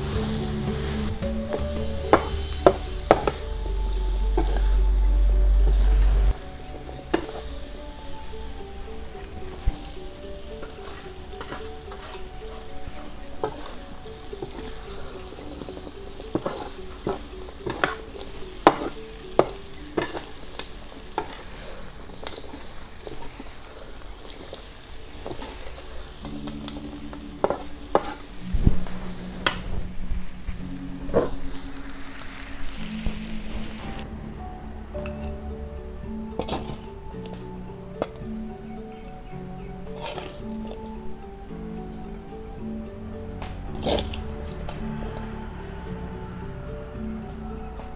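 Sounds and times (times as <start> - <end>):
food sizzling in a wok: 0.0 - 34.0
metal spatula scraping a pan: 10.6 - 12.8, 13.4 - 20.3, 26.8 - 28.4, 39.9 - 40.8.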